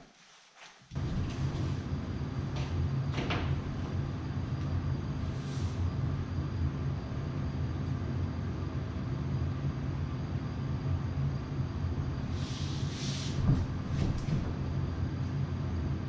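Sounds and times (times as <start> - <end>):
motor rumbling: 0.9 - 6.6.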